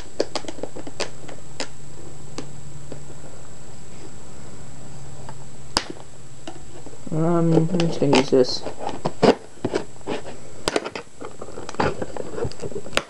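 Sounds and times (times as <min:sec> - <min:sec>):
low hum: 0:00.0 - 0:07.8.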